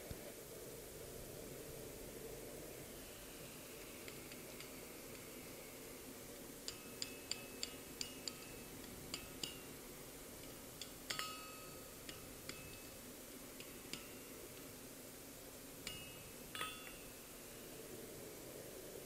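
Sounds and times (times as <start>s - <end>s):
metal clinks on an anvil: 6.7s - 9.7s, 10.4s - 13.0s, 15.8s - 17.4s.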